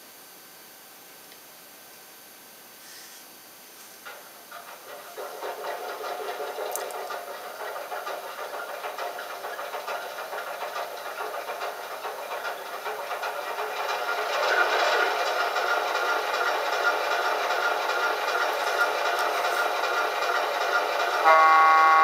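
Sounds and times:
diesel engine idling: 0:11.1 - 0:21.4.

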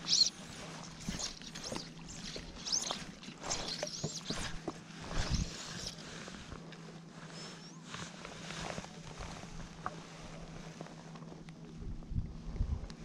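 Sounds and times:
fly line swishing: 0:00.0 - 0:06.0
water lapping: 0:00.0 - 0:06.3.

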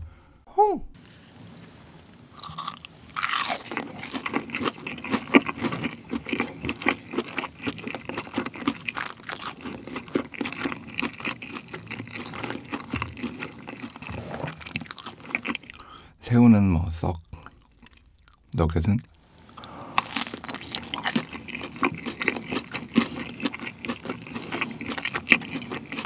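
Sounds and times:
crunchy chewing: 0:02.3 - 0:16.0, 0:17.3 - 0:26.0
crunchy bite into fried food: 0:02.4 - 0:15.8, 0:19.9 - 0:26.0.

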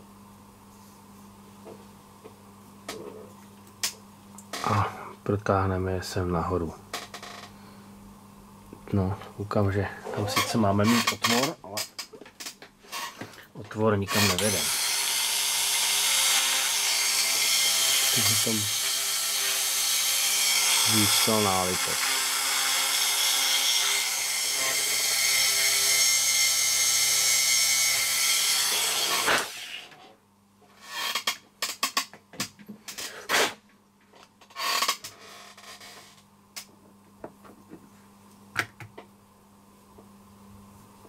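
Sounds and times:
electric drill whining: 0:14.2 - 0:27.2.

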